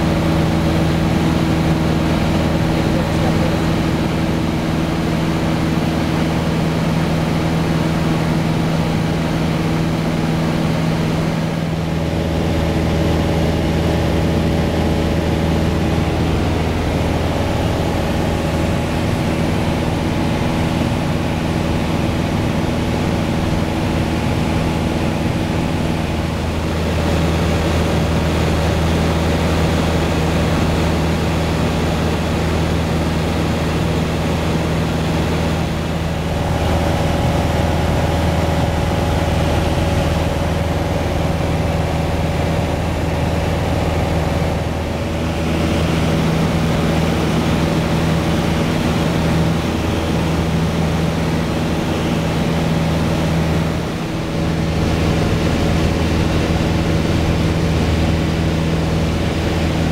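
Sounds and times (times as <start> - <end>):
aircraft engine and propeller drone: 0.0 - 59.9.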